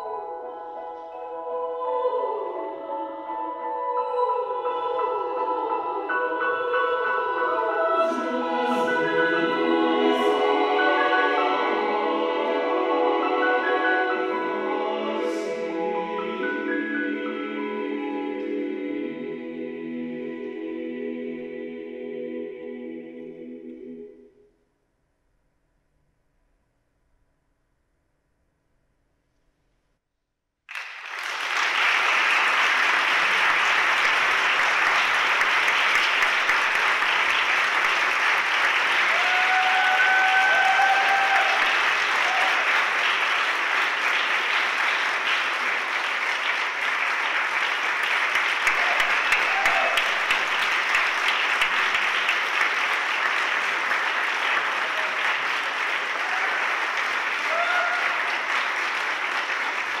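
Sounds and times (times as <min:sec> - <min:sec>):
audience applauding: 0:30.7 - 1:00.0.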